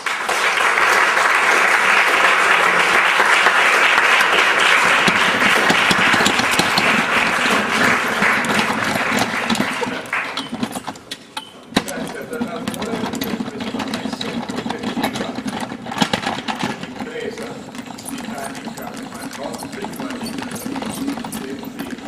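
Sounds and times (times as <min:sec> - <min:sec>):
audience applauding: 0:00.0 - 0:11.0, 0:17.1 - 0:22.0.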